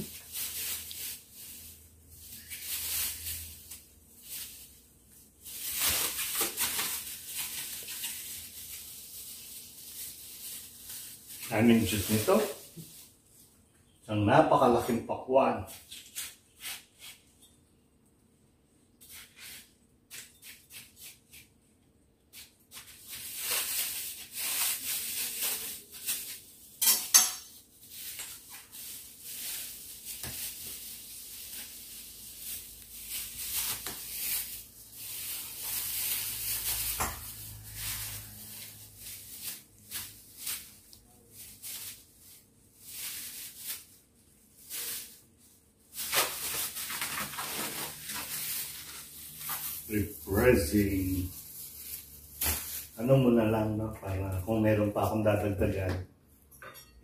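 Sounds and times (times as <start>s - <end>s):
plastic bag rustling: 0.0s - 13.6s, 22.4s - 26.8s, 27.4s - 54.7s.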